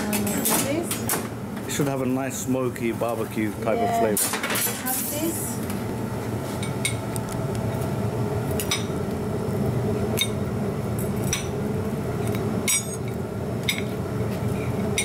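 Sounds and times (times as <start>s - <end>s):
low kitchen hum: 0.0s - 15.0s.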